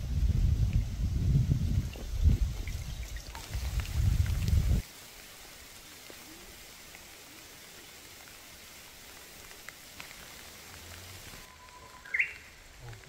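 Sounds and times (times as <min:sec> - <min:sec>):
rain falling on a pond: 0:01.6 - 0:13.0.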